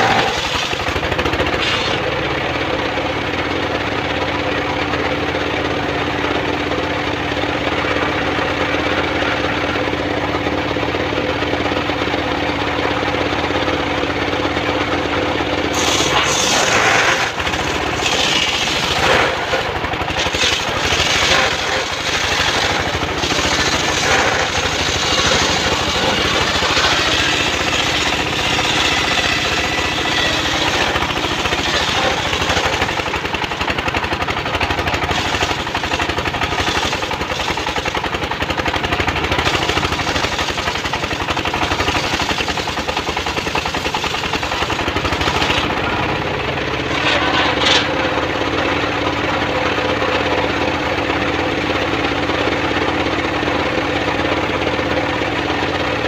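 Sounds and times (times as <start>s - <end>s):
saw blade rasping through wood: 0.0s - 2.2s, 15.7s - 33.8s, 34.6s - 38.0s, 39.4s - 46.0s, 46.8s - 48.2s
engine running: 0.0s - 56.0s.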